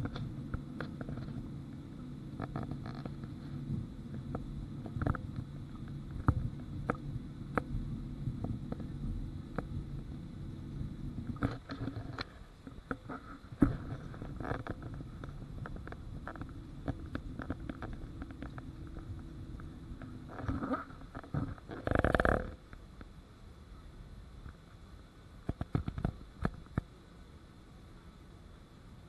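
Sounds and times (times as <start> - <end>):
airliner cabin rumble: 0.0 - 21.8
faint high whine: 0.0 - 29.0.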